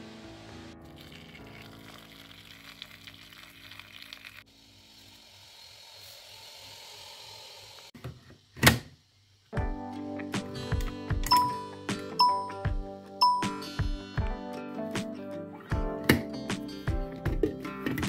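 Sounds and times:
background music: 0.0s - 4.0s, 9.6s - 18.0s
water pouring into pot: 0.8s - 7.9s.

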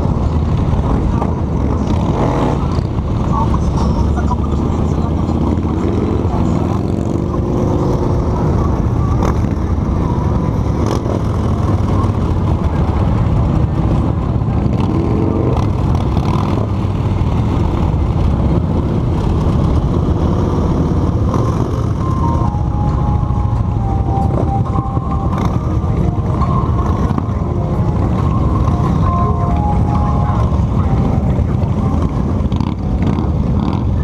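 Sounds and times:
motorcycle engines rumbling: 0.0s - 34.0s
faint tune of held notes: 21.4s - 32.5s.

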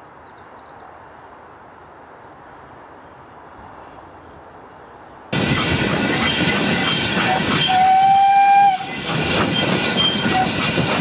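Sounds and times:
faint outdoor background: 0.0s - 5.4s
locomotive wheels rumbling and clattering: 5.4s - 11.0s.

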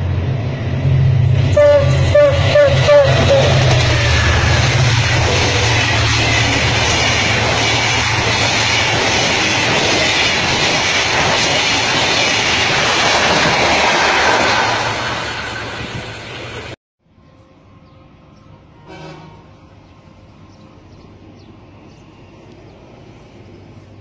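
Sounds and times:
train wheels rumbling on rails: 0.0s - 16.8s.

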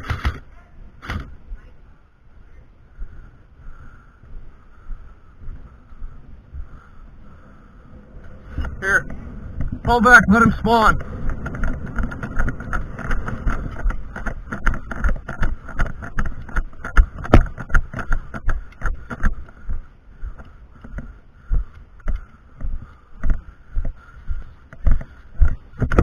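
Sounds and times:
footsteps: 8.2s - 26.0s.

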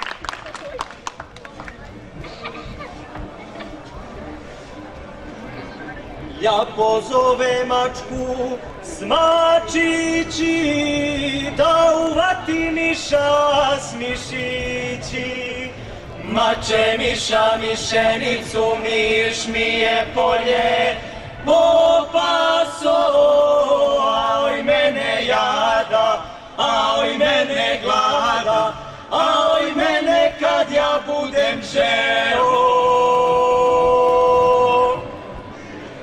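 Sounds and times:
folk vocal group singing: 6.4s - 35.2s.

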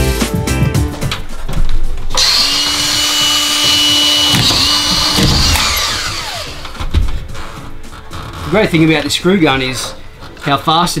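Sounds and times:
screw gun motor whining: 2.2s - 6.8s.

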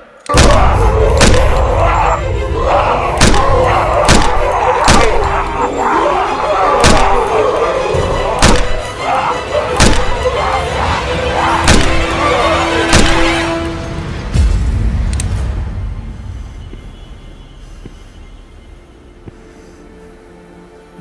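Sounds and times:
dramatic film score: 0.0s - 21.0s
heavy percussive hits: 3.2s - 5.5s.

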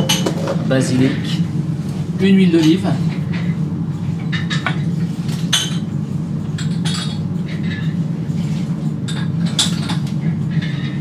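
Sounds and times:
utensils and dishware clinking: 0.0s - 1.4s, 4.2s - 8.0s, 9.0s - 11.0s
low kitchen hum: 0.0s - 11.0s.

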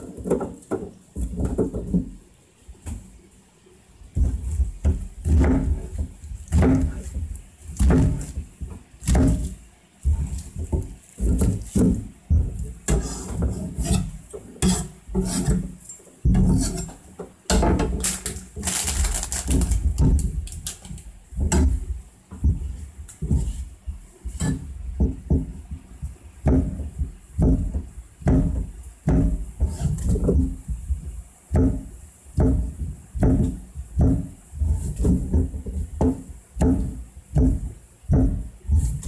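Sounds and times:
knife chopping on cutting board: 9.0s - 12.1s, 12.9s - 15.7s
blade scraping across board: 12.9s - 15.7s.

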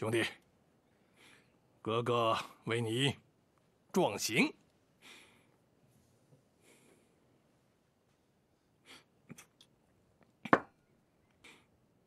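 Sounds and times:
faint breaths: 0.8s - 1.8s, 4.9s - 7.7s, 11.2s - 12.0s
soft clicks of drinking: 9.3s - 10.4s.

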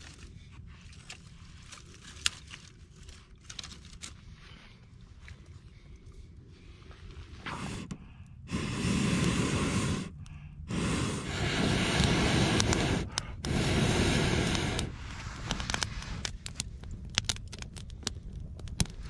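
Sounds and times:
person blowing on a fire: 7.4s - 16.6s.

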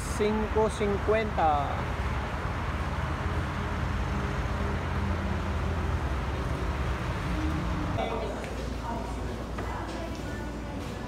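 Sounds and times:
motor vehicle rumble: 0.0s - 8.0s.

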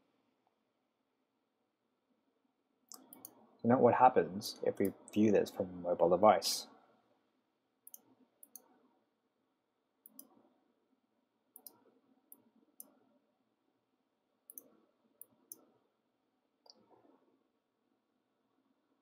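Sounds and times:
computer mouse clicks: 2.9s - 3.4s, 7.8s - 8.8s, 10.0s - 10.4s, 11.6s - 13.0s, 14.5s - 15.7s.

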